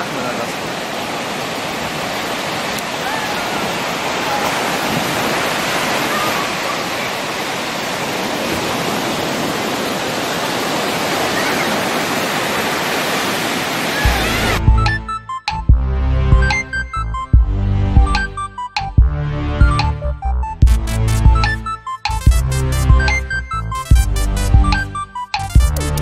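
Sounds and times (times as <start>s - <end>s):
surf waves breaking: 0.0s - 14.6s.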